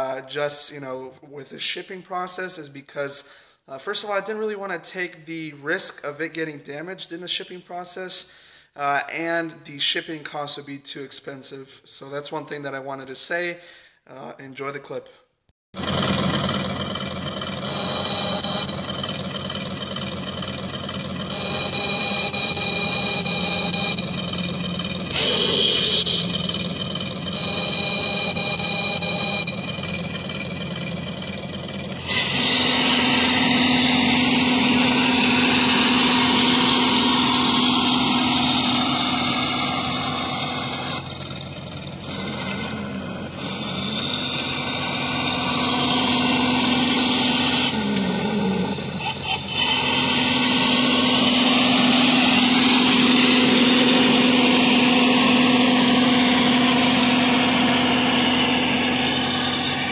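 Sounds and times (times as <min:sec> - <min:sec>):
electronic engine hum: 0:15.8 - 0:59.9
electronic steady tones: 0:17.3 - 0:30.6.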